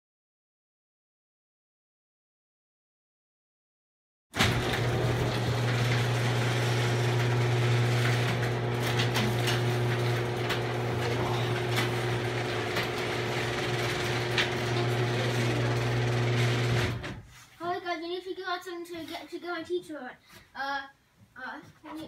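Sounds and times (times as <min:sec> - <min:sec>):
garage door clicks and rattles: 0:04.4 - 0:17.2
garage door motor hum: 0:04.4 - 0:17.3.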